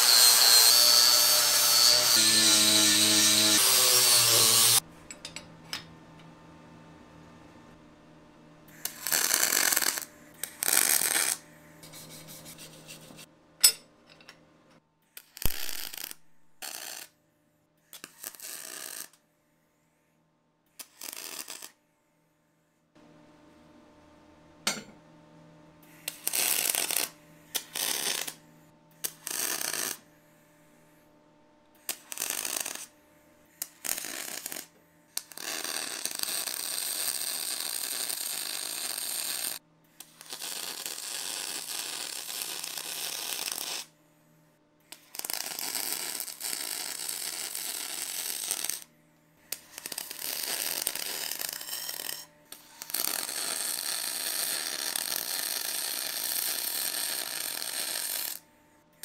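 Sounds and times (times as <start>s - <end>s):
arc welding crackling hiss: 8.8s - 11.4s, 15.4s - 17.1s, 26.0s - 28.4s, 29.0s - 30.0s, 31.8s - 32.9s, 33.6s - 43.9s, 45.0s - 48.9s, 49.6s - 58.4s.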